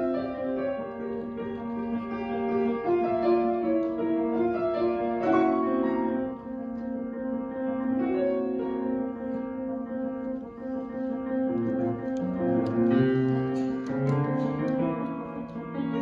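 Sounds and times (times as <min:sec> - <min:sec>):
solo grand piano: 0:00.0 - 0:16.0.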